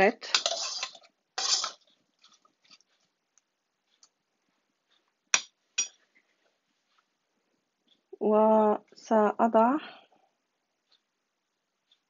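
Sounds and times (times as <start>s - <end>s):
spoon stirring apples: 0.0s - 3.4s
spoon tapping saucepan: 5.4s - 6.0s.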